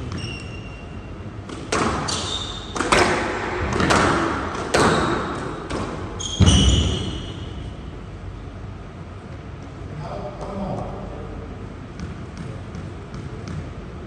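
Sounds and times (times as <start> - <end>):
shoes squeaking on floor: 0.0 - 1.1, 2.0 - 2.8, 6.2 - 7.7
squash ball hitting rackets and walls: 0.0 - 7.7, 11.9 - 13.8.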